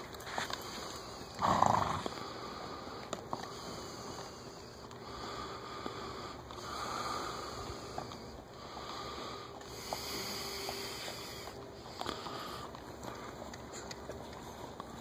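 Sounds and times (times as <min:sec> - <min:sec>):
horse snorting: 0:01.2 - 0:02.2
faint hoof ticks on dirt: 0:09.5 - 0:15.0.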